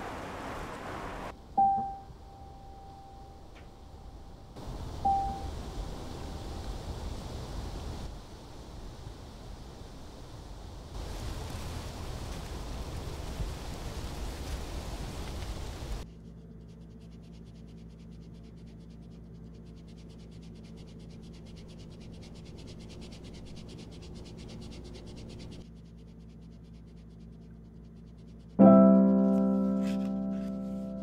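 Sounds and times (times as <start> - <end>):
hiss of noise: 0.0 - 1.3, 4.5 - 16.0
soft low drone: 1.3 - 15.4, 16.0 - 31.0
piano chord ringing: 1.4 - 5.6, 28.6 - 31.0.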